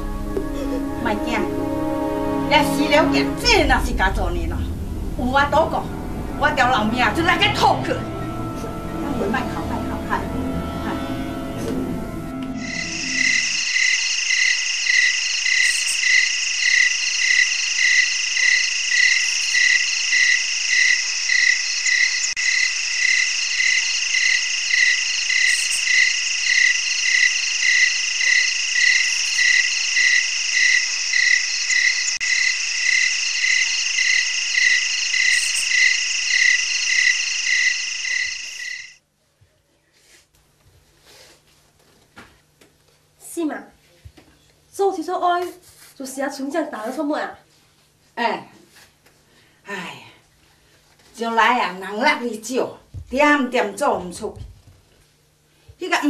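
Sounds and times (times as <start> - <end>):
insects and frogs trilling: 12.6 - 39.0
regular chirp: 12.6 - 39.0.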